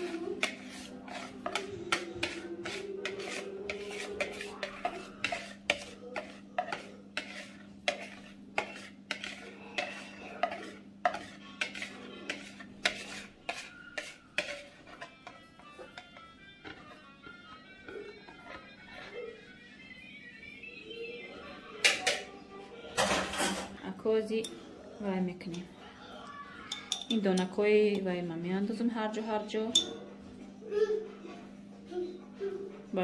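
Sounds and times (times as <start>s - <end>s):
spatula scraping plastic bowl: 0.0s - 19.6s
music: 14.5s - 23.3s.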